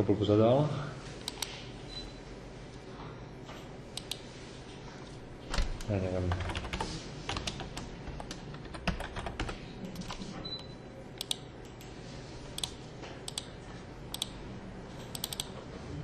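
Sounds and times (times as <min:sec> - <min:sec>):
computer keyboard keys tapping: 0:05.8 - 0:10.2, 0:12.6 - 0:13.5, 0:15.1 - 0:15.5.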